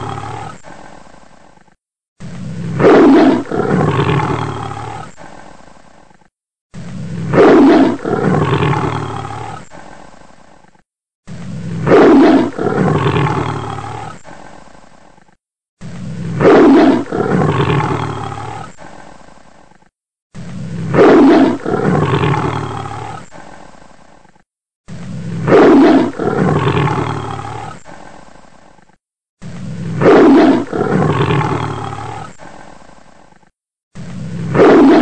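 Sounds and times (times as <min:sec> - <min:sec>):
big cat roaring: 0:00.0 - 0:00.9, 0:02.2 - 0:05.3, 0:06.8 - 0:09.9, 0:11.4 - 0:14.3, 0:15.8 - 0:18.9, 0:20.4 - 0:23.5, 0:25.1 - 0:28.0, 0:29.4 - 0:32.6, 0:34.0 - 0:35.0.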